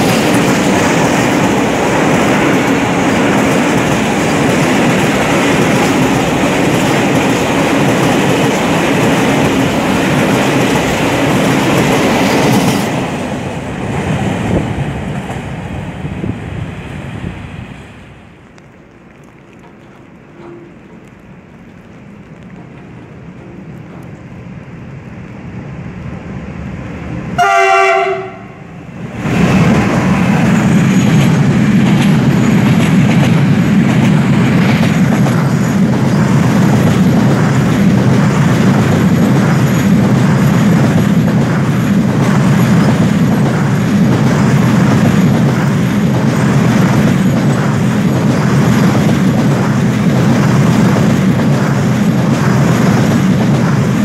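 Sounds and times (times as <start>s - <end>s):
train rumble: 0.0s - 54.0s
train wheels rolling on rails: 0.0s - 54.0s
locomotive horn blast: 27.4s - 28.8s.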